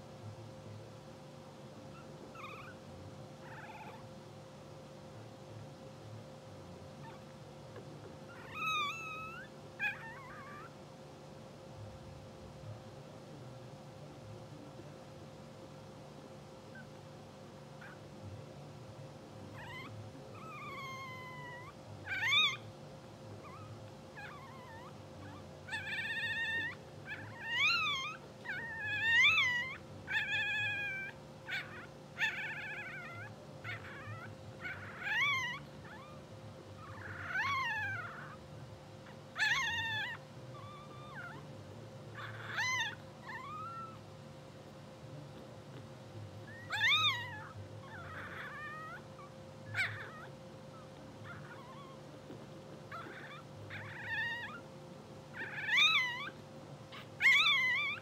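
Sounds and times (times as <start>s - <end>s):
steady low hum: 0.0s - 58.0s
puppies squeaking: 1.9s - 2.8s, 8.3s - 10.7s, 19.5s - 22.6s, 23.4s - 38.4s, 39.0s - 41.5s, 42.1s - 44.0s, 46.4s - 54.7s, 55.3s - 58.0s.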